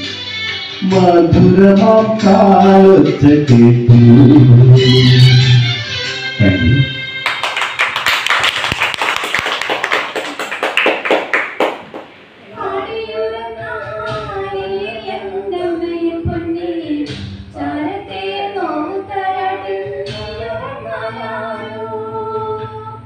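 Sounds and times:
people clapping: 0:07.2 - 0:12.2.

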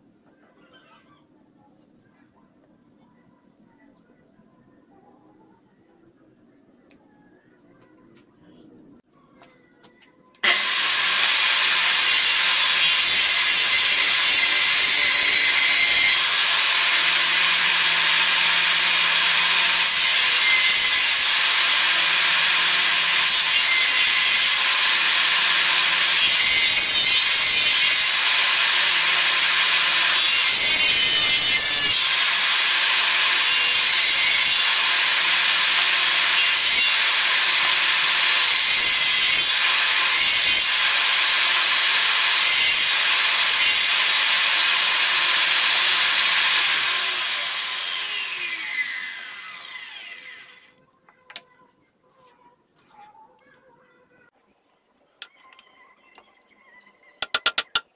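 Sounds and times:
saw blade cutting wood: 0:10.4 - 0:50.7, 0:57.2 - 0:57.9
saw winding down: 0:10.4 - 0:50.7
circular saw whining: 0:10.4 - 0:50.8.

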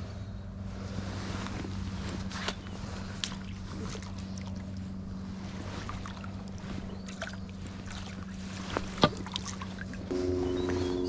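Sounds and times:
steady low hum: 0:00.0 - 0:11.0
net splashing in water: 0:05.6 - 0:10.0.

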